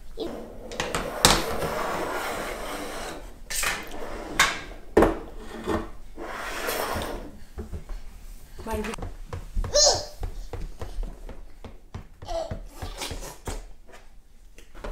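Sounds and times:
toy car wheels scraping tabletop: 0:00.3 - 0:07.4.

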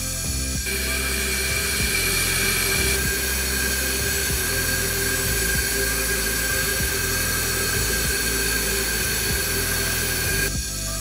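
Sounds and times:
background music with bass: 0:00.0 - 0:11.0
compressed air whine: 0:00.0 - 0:11.0.

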